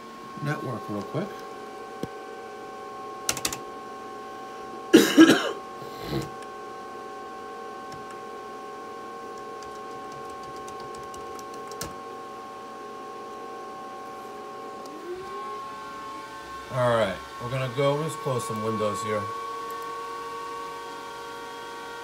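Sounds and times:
cooling fans humming and whining: 0:00.0 - 0:22.0
person coughing: 0:04.9 - 0:06.3.

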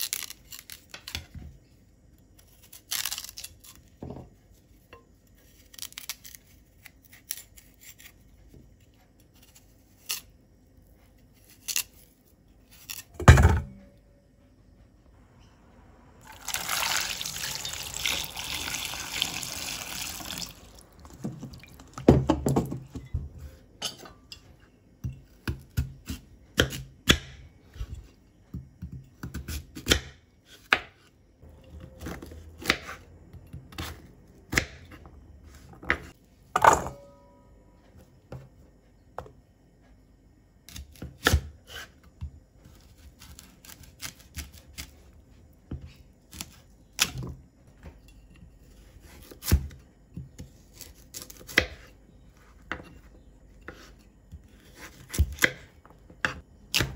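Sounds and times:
knife scraping taro: 0:00.0 - 0:01.3, 0:02.4 - 0:03.9, 0:05.3 - 0:08.3, 0:09.3 - 0:10.3, 0:11.2 - 0:13.1, 0:40.7 - 0:45.1.

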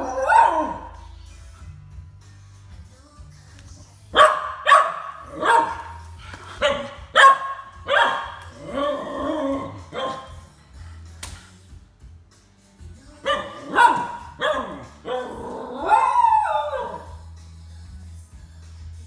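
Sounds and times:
dog barking and howling: 0:00.0 - 0:01.2, 0:04.2 - 0:10.4, 0:13.2 - 0:17.2.

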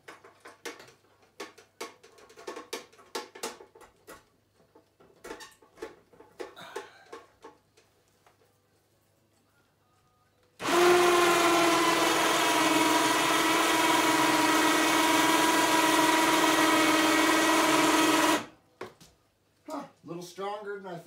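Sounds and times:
winch motor whining: 0:10.6 - 0:18.5.

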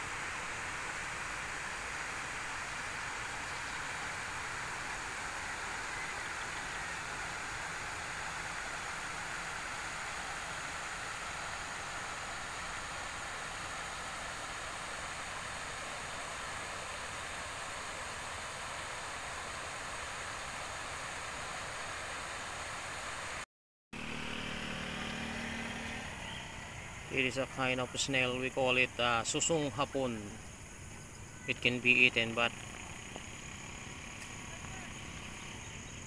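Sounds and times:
river flowing over stones: 0:00.0 - 0:23.4.

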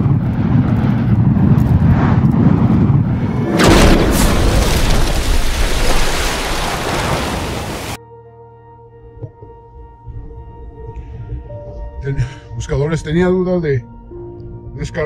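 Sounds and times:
low rumble: 0:00.0 - 0:08.0
loud explosion blast: 0:03.2 - 0:08.0.

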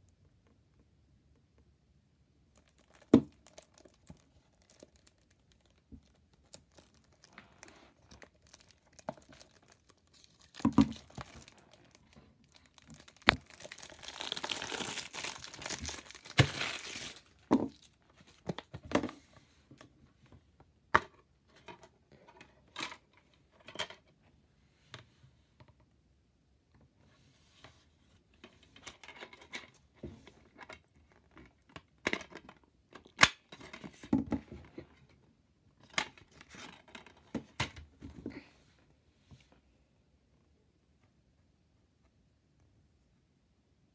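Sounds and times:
rustling: 0:02.5 - 0:19.6
plastic wrap tearing and crinkling: 0:02.6 - 0:17.9.

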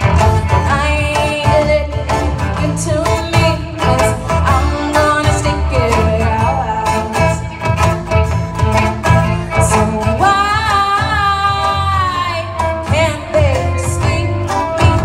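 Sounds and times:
live band playing: 0:00.0 - 0:15.0
person singing: 0:08.8 - 0:15.0.

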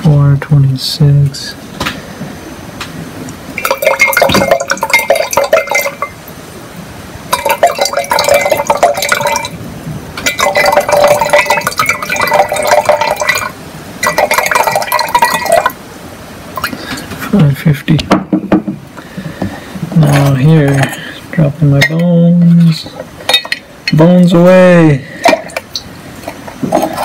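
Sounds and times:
liquid pouring into glass jar: 0:03.6 - 0:06.2, 0:07.3 - 0:09.6, 0:10.2 - 0:15.8.

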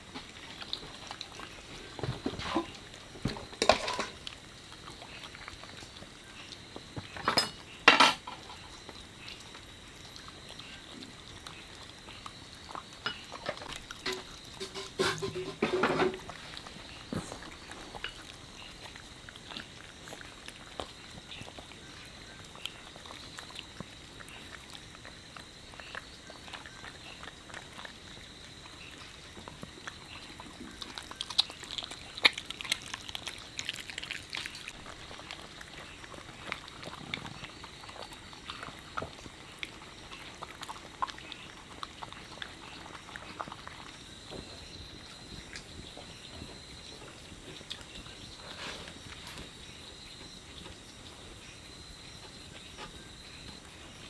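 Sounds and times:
puppy chewing and licking: 0:00.0 - 0:54.0.

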